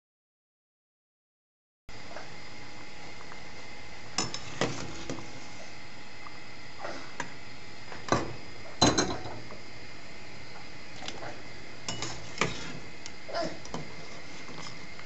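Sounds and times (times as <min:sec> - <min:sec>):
metal spoon clinking on pot: 0:11.9 - 0:12.2.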